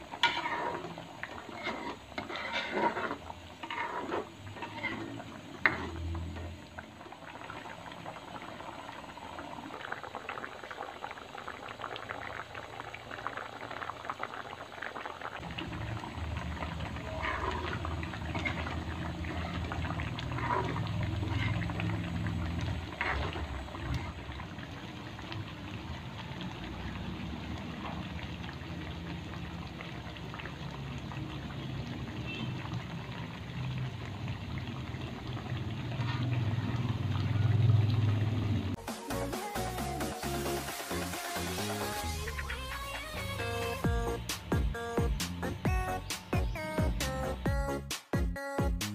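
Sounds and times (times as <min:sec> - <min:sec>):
spatula scraping wok: 0:00.0 - 0:06.6, 0:15.7 - 0:24.3, 0:35.9 - 0:37.7, 0:40.2 - 0:44.2
thick sauce bubbling: 0:00.0 - 0:38.8.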